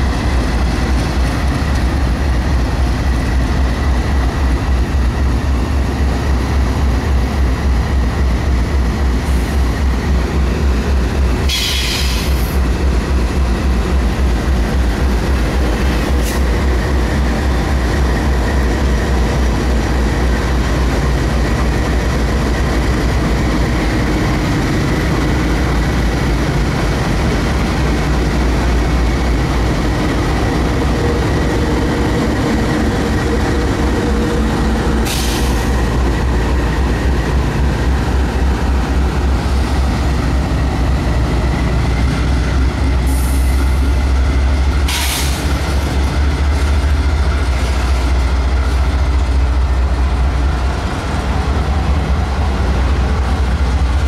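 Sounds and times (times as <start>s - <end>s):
diesel locomotive engines rumbling: 0.0s - 54.0s
brief hiss: 11.5s - 12.4s.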